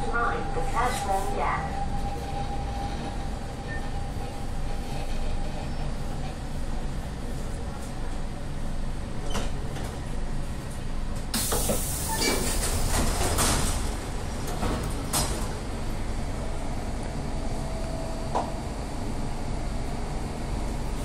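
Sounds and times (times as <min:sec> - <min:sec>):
low train rumble: 0:00.0 - 0:21.0
train doors sliding open: 0:09.1 - 0:10.2, 0:11.2 - 0:16.4.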